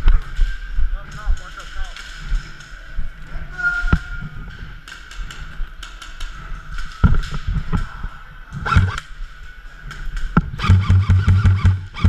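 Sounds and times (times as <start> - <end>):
airsoft guns firing: 8.6 - 9.0, 10.4 - 12.0.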